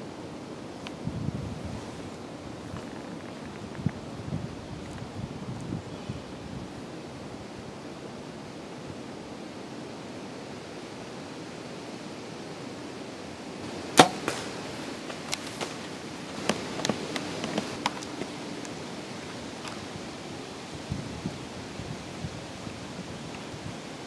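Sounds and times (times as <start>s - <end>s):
wind hiss: 0.0s - 24.0s
bow string release crack: 14.0s - 18.8s
light snaps and crunches: 14.0s - 20.0s.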